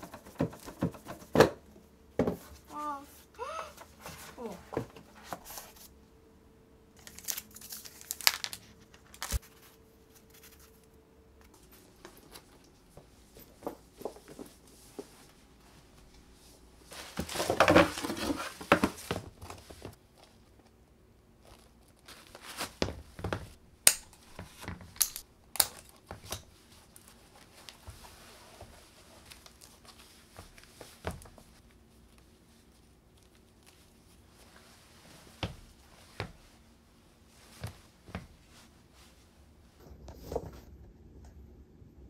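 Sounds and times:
paper crinkling: 7.0 - 12.6, 24.1 - 34.7
cardboard packaging handled: 16.9 - 20.0.

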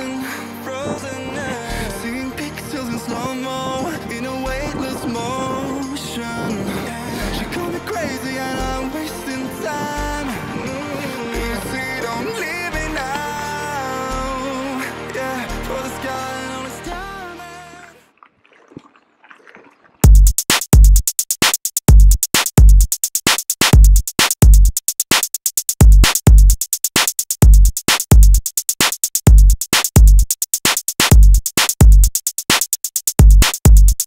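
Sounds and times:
background song: 0.0 - 18.1
electronic drum machine beat: 20.0 - 34.0.

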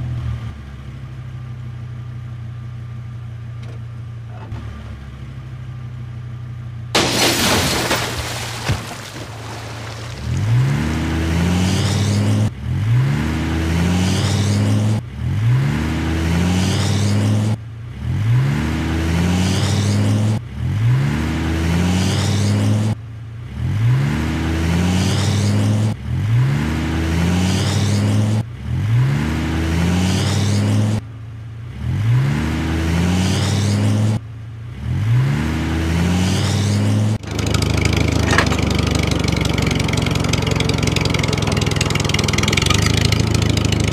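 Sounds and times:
tractor engine revving: 7.0 - 17.6, 35.0 - 43.9.

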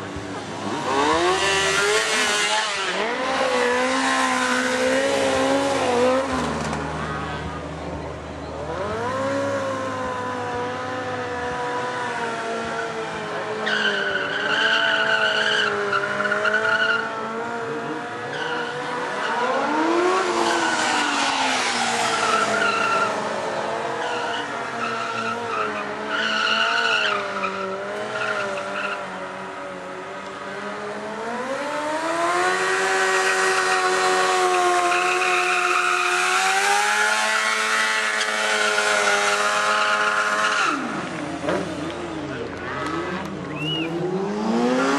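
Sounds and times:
motorcycle engine revving: 0.5 - 7.6, 15.7 - 44.9
tyre squeal: 43.5 - 44.0.

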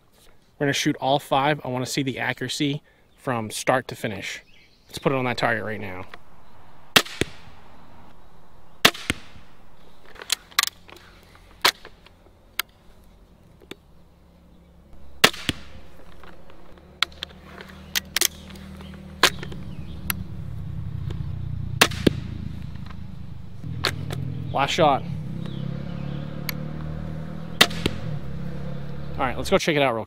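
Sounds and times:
bolts striking foam target: 8.8 - 9.5, 15.2 - 17.2, 21.8 - 22.3, 27.6 - 28.1
crossbow snaps and clacks: 10.0 - 12.8, 15.2 - 20.2, 26.4 - 26.6.

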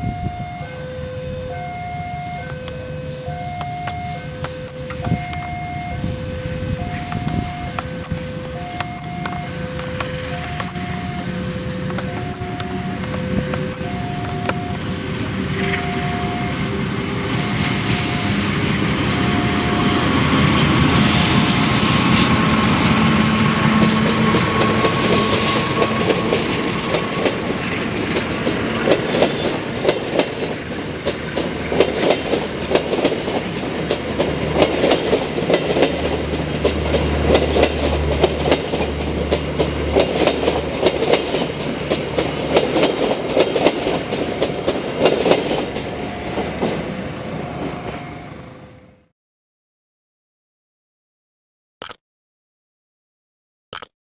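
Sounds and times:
train rolling past: 0.0 - 49.1
wheels clacking over rail joints: 6.8 - 48.2.

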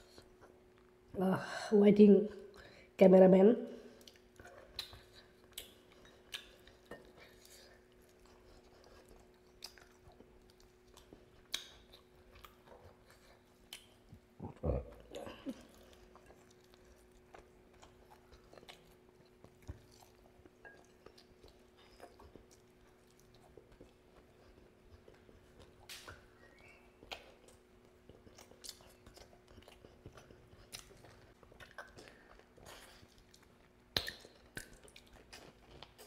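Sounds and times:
faint steady hum: 0.0 - 36.0
chewing and biting chicken: 4.1 - 36.0
wet mouth clicks: 4.7 - 6.6, 33.9 - 34.8.

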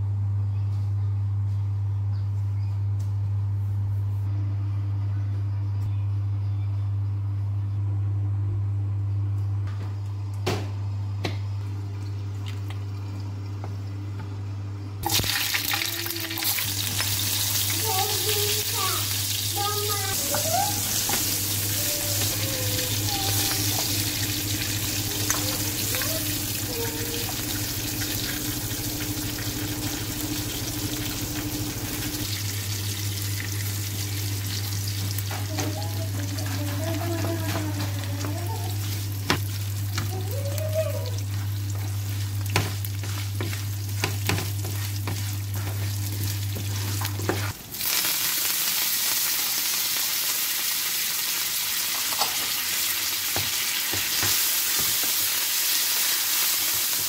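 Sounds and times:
food sizzling in oil: 15.0 - 57.0
steady low hum: 16.8 - 47.8.

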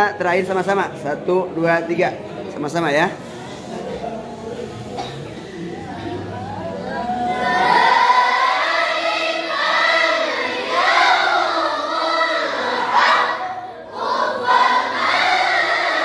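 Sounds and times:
group chanting in unison: 7.2 - 16.0.

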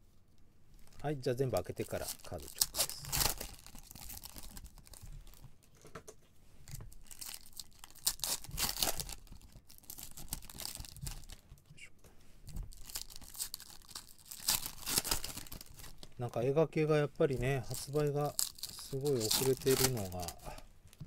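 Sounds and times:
foil wrappers tearing and crinkling: 0.8 - 5.4, 7.0 - 11.4, 12.7 - 16.1, 17.6 - 21.0.

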